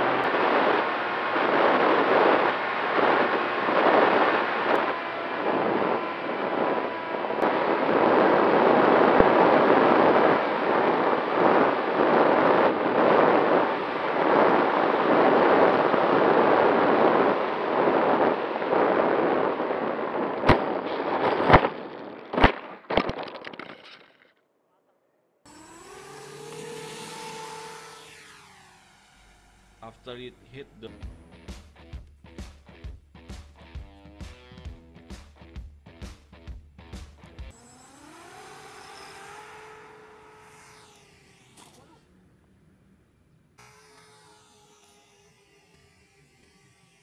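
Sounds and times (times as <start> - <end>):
model plane motor and propeller: 0.0 - 21.9, 25.5 - 29.8, 37.5 - 42.8, 43.6 - 47.0
wind rushing over camera: 0.0 - 24.0
plane crashing on dirt ground: 20.3 - 24.3.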